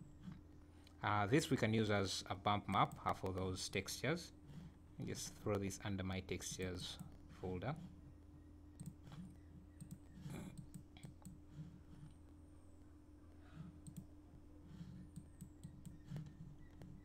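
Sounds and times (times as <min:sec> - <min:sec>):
low electrical hum: 0:00.0 - 0:17.0
computer mouse clicks: 0:02.6 - 0:03.5, 0:08.7 - 0:12.2, 0:13.6 - 0:17.0.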